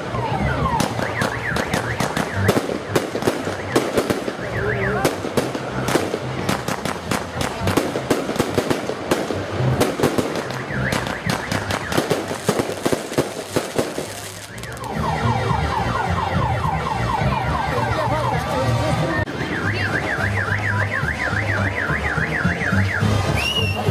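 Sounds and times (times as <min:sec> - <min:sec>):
fireworks bursting and crackling: 0:00.0 - 0:15.0.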